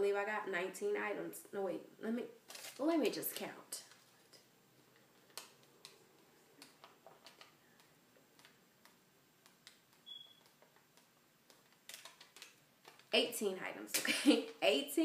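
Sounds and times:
paper receipt rustling: 0:02.4 - 0:08.6.

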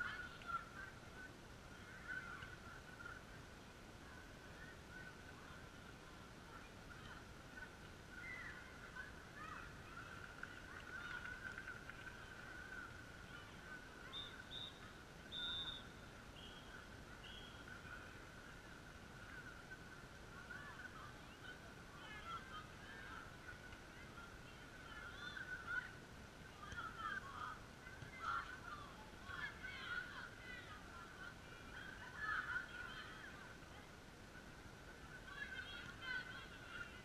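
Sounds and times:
high whistle blasts: 0:14.1 - 0:16.0.

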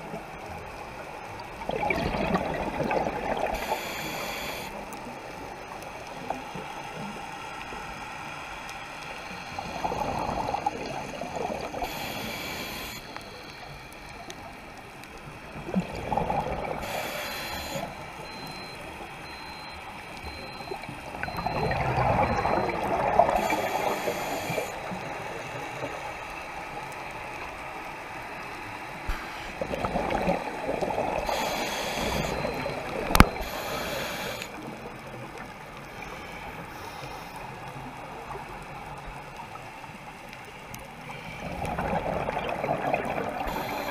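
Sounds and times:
gurgling exhaled bubbles: 0:01.5 - 0:04.3, 0:09.5 - 0:12.0, 0:15.4 - 0:18.8, 0:20.3 - 0:25.1, 0:29.5 - 0:33.8, 0:41.4 - 0:43.9
hissing regulator inhales: 0:03.5 - 0:04.7, 0:11.8 - 0:13.7, 0:16.8 - 0:18.0, 0:23.4 - 0:24.8, 0:31.2 - 0:34.6.

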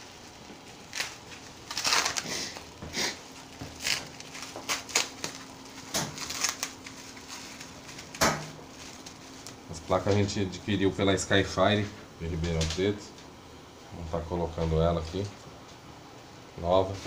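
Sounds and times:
bubble wrap crinkling: 0:00.0 - 0:11.3.

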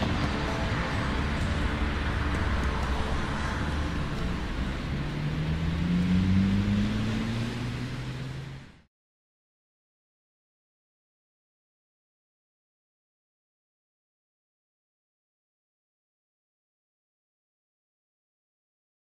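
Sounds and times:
low drone: 0:00.0 - 0:08.9
wash of noise: 0:00.0 - 0:08.9.

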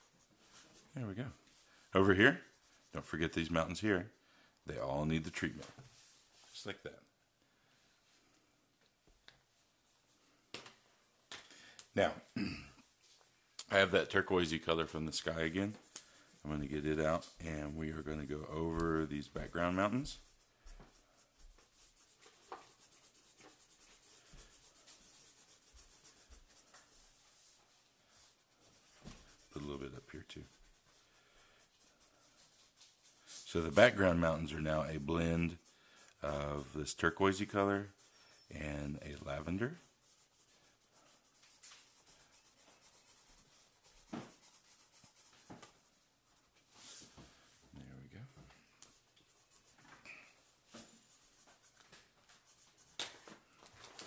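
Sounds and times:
marker scratching on paper: 0:00.0 - 0:00.8, 0:01.5 - 0:03.8, 0:13.7 - 0:47.5, 0:48.8 - 0:53.6.

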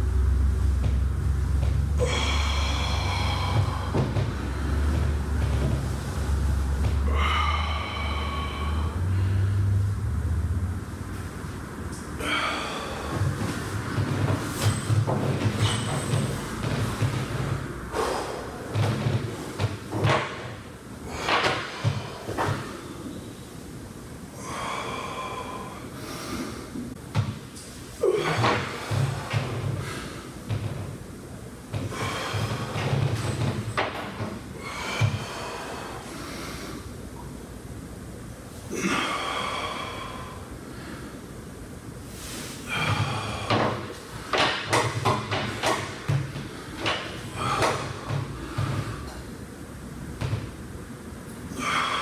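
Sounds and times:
exercise machine creaking: 0:00.0 - 0:09.8, 0:11.9 - 0:23.0, 0:27.2 - 0:31.0, 0:31.7 - 0:36.5, 0:42.7 - 0:49.3
person exhaling forcefully: 0:01.9 - 0:09.9, 0:12.2 - 0:17.1, 0:17.9 - 0:19.6, 0:24.4 - 0:26.7, 0:31.9 - 0:33.2, 0:38.7 - 0:41.2, 0:42.1 - 0:44.4, 0:45.5 - 0:49.2, 0:51.5 - 0:52.0.

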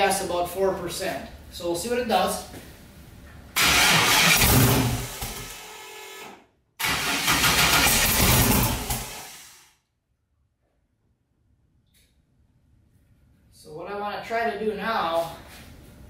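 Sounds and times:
engine cranking on starter: 0:03.6 - 0:05.8, 0:06.8 - 0:09.6.

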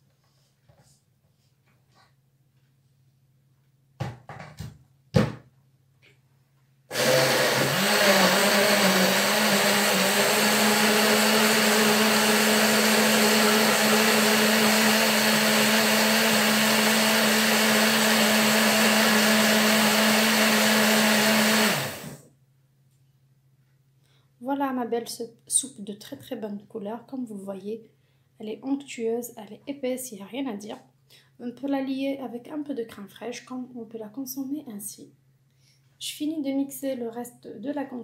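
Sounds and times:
blender motor humming: 0:06.9 - 0:22.2.

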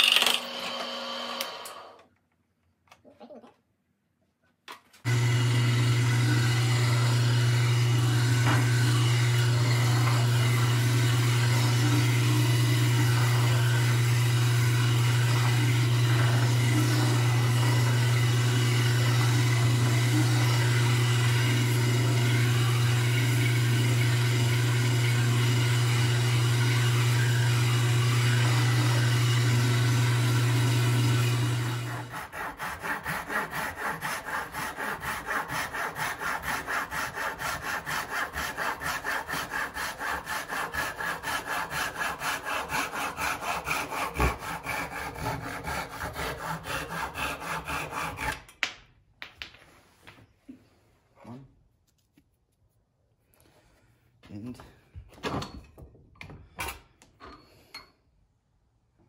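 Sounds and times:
handsaw cutting wood: 0:05.0 - 0:48.6
wood lathe motor hum: 0:05.1 - 0:48.3.

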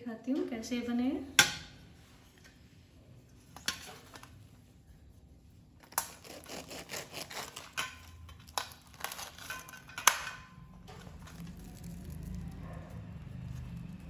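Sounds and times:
knife crunching fried bread: 0:05.8 - 0:09.9, 0:11.0 - 0:12.6.

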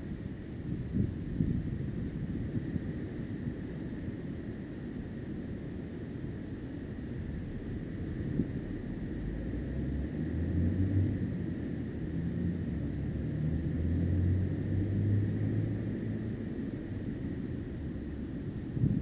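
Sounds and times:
vehicle engine rumble: 0:07.1 - 0:19.0.

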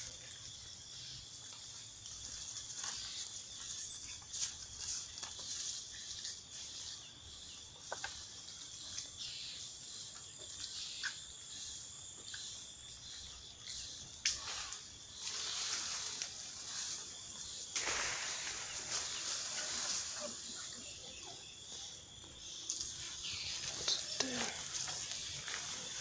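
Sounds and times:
insect chorus: 0:00.0 - 0:26.0
rustling leaves and branches: 0:00.0 - 0:26.0.

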